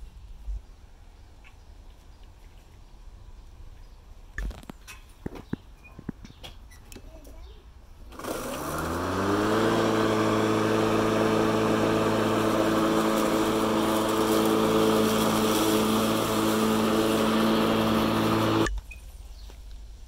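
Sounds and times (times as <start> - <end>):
electric lawnmower humming: 8.1 - 18.7.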